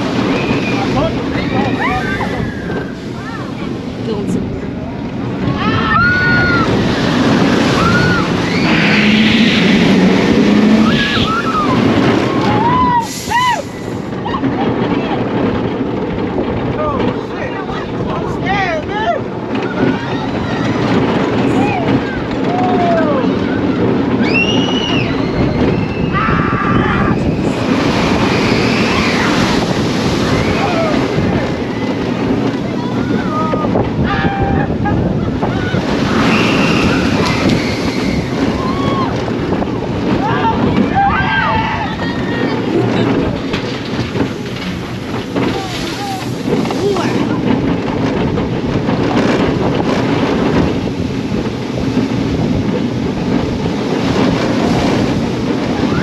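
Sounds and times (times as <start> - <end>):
roller coaster on track: 0.0 - 56.0
wind rushing over microphone: 0.0 - 56.0
riders screaming: 5.5 - 13.8, 21.5 - 32.0, 33.0 - 39.4, 40.1 - 42.7
riders yelling: 40.1 - 43.0, 45.4 - 47.4.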